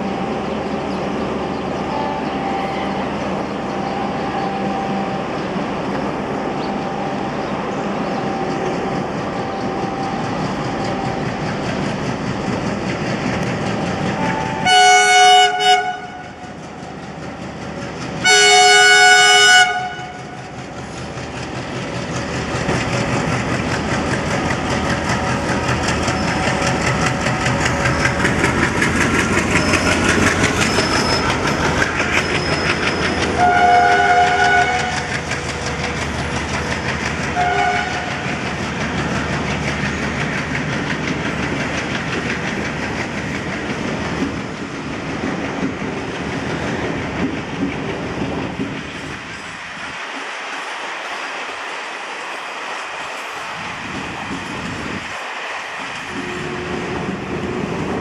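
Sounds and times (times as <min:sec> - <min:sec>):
diesel locomotive engine: 0:00.0 - 0:58.0
train horn blasts: 0:01.9 - 0:03.2, 0:14.2 - 0:16.5, 0:18.2 - 0:20.4, 0:33.3 - 0:35.1, 0:37.3 - 0:38.3, 0:56.1 - 0:57.6
train wheels clicking on rail joints: 0:07.4 - 0:58.0.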